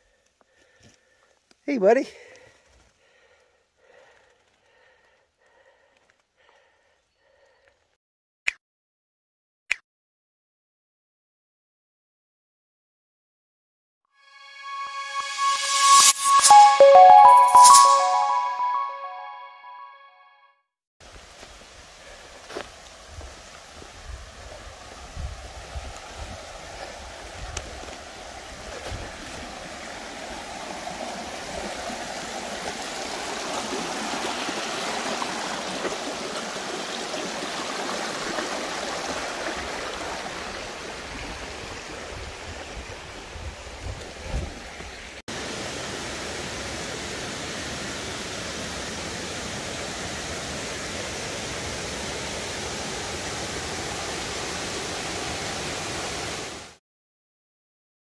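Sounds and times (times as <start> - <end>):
water rushing: 24.5 - 43.8, 45.3 - 56.7.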